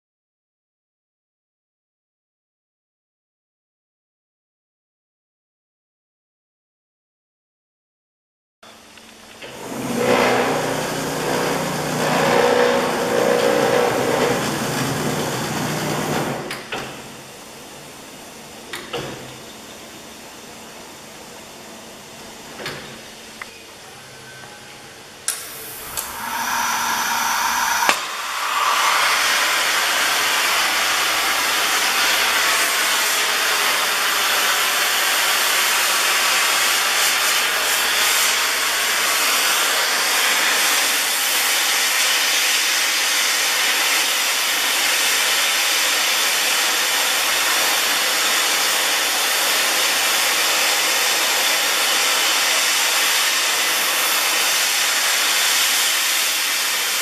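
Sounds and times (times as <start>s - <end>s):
cutting torch flame hissing: 25.4s - 34.1s.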